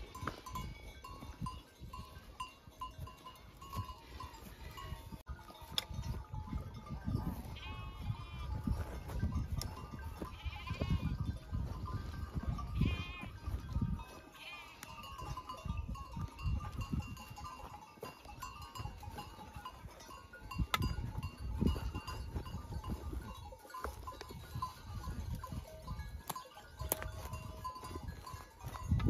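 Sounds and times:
goats bleating: 3.8s - 5.2s, 7.5s - 8.7s, 10.0s - 11.3s, 12.4s - 13.5s, 14.1s - 15.4s
rustle: 14.1s - 15.0s.

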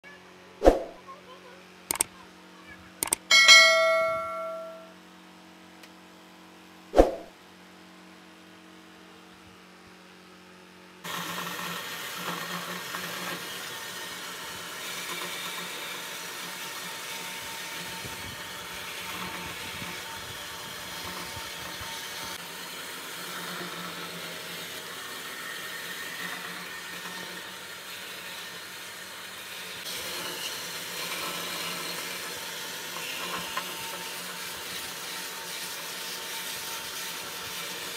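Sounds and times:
sharp click: 1.9s - 2.1s, 3.0s - 3.3s, 7.0s - 7.3s
band saw cutting wood: 11.1s - 28.6s.

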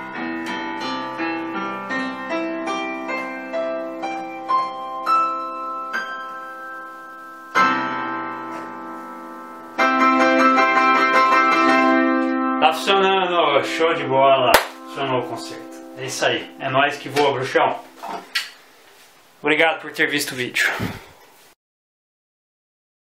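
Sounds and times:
keyboard playing piano notes and chords: 0.0s - 18.4s.

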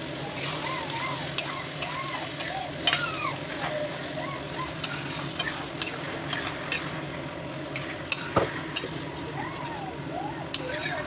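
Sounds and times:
hot pan sizzling: 0.0s - 11.0s
spatula scraping metal pan: 4.8s - 6.9s, 10.5s - 11.0s.

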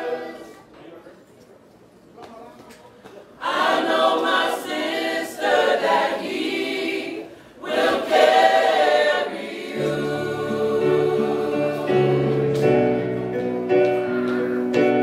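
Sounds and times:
group singing a cappella: 0.0s - 0.7s, 3.4s - 13.0s.

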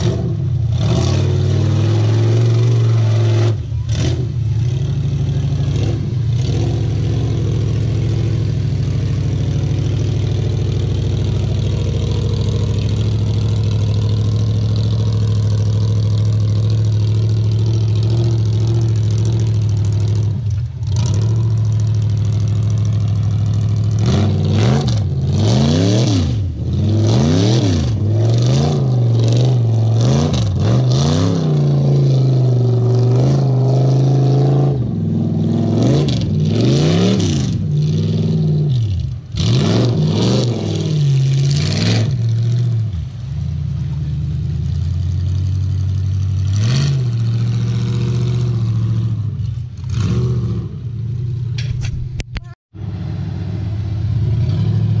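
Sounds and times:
engine revving: 0.0s - 51.2s, 52.8s - 55.0s.

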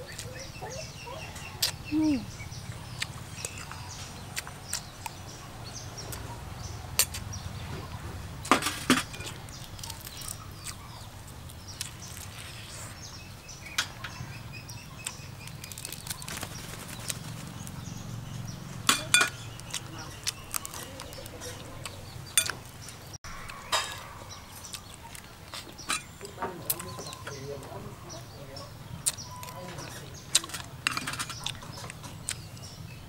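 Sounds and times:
chewing smacks and clicks: 1.6s - 1.8s, 2.8s - 5.2s, 9.2s - 12.5s, 15.0s - 17.8s, 19.6s - 23.1s, 24.6s - 25.8s, 29.0s - 30.8s, 31.4s - 32.7s.

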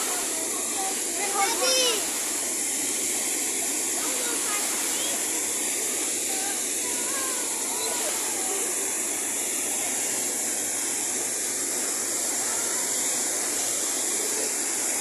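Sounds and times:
waterfall rushing: 0.0s - 15.0s
faint distant voices: 3.1s - 15.0s.

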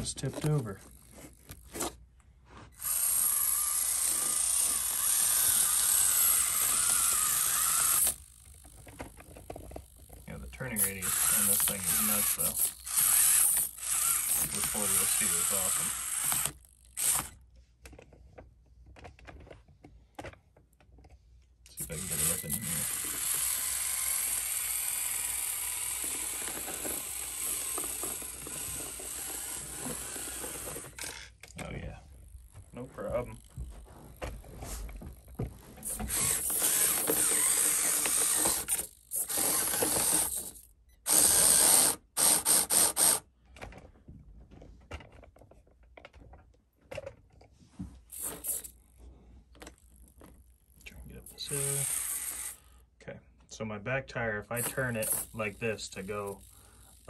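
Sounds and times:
electric motor and gears whining: 2.7s - 17.5s, 21.7s - 43.2s, 48.1s - 48.8s, 51.2s - 52.9s, 54.5s - 57.0s.

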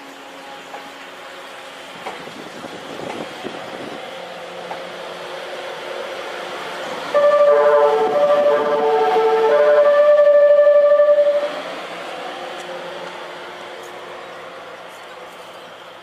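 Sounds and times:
train noise: 0.0s - 16.0s
train music horn melody: 7.0s - 11.9s.

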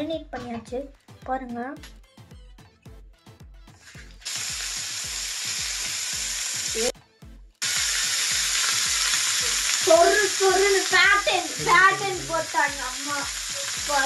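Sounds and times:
background music with steady beat: 0.0s - 14.0s
fish sizzling in hot oil: 3.8s - 6.9s, 7.6s - 14.0s.

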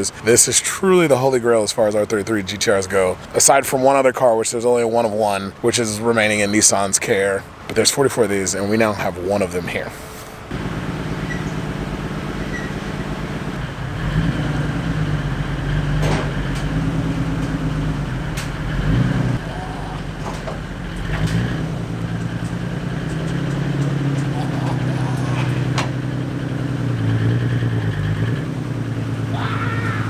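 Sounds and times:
engine idling and revving: 10.5s - 30.0s.

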